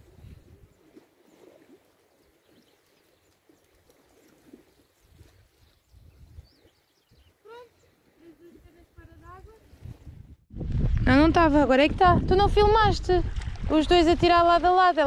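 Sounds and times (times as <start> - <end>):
wind rumble on microphone: 0.0 - 1.0, 5.0 - 7.3, 8.6 - 15.0.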